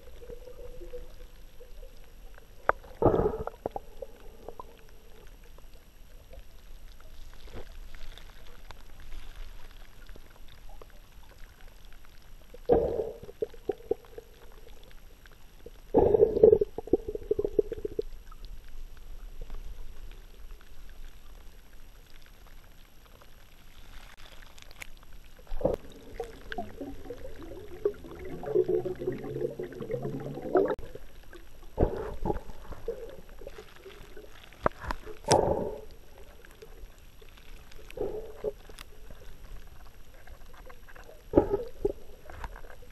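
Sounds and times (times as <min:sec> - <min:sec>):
dull water surges: 0:00.0 - 0:42.9
underwater water sloshing: 0:00.0 - 0:42.9
water bubbling and churning: 0:00.0 - 0:42.9
low steady rumble: 0:25.0 - 0:42.9.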